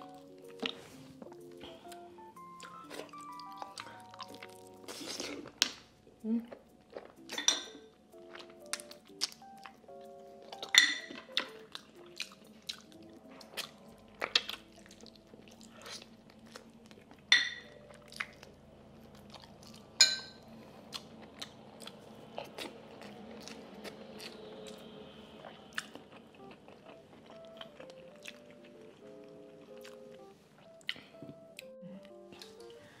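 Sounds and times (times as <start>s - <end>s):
faint background music: 0.0s - 33.0s
chewing and mouth smacks: 0.4s - 2.0s, 6.5s - 7.4s, 10.5s - 19.9s, 25.4s - 31.7s.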